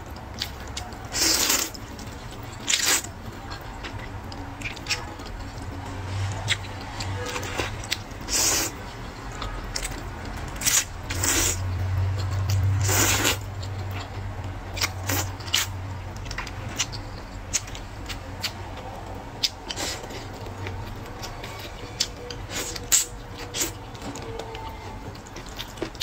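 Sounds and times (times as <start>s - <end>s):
wet chewing: 0.0s - 26.0s
slurping noodles: 1.1s - 3.1s, 6.2s - 8.8s, 10.6s - 11.7s, 12.8s - 13.4s.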